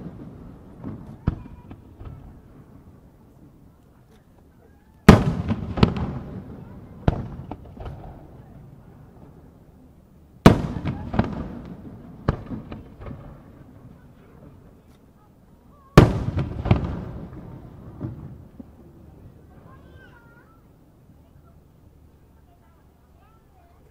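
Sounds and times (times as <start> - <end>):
firework booms: 0.0 - 3.7, 5.0 - 9.6, 10.4 - 14.9, 15.9 - 20.5
small firework pops: 0.0 - 9.4, 10.4 - 15.3, 15.9 - 20.5.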